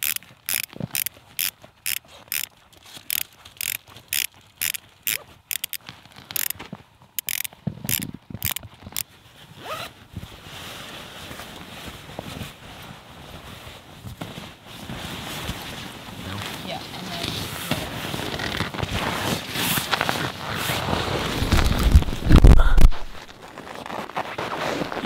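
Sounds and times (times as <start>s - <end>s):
zipper rasping open: 0.0s - 2.5s, 3.1s - 6.5s, 7.2s - 9.0s, 9.6s - 9.9s, 17.0s - 25.0s.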